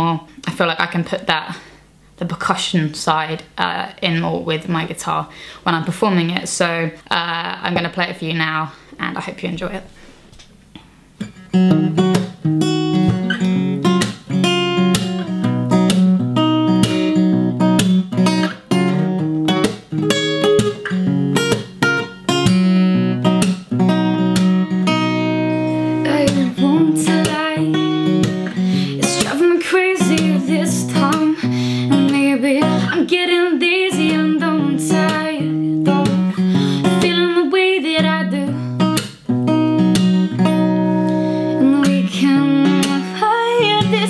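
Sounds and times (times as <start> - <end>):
acoustic guitar strumming: 11.2 - 44.0
young woman singing: 25.6 - 38.9, 41.0 - 44.0.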